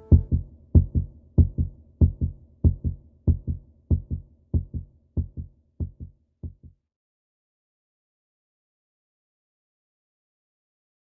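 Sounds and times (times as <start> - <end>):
heartbeat thumps: 0.0 - 6.7.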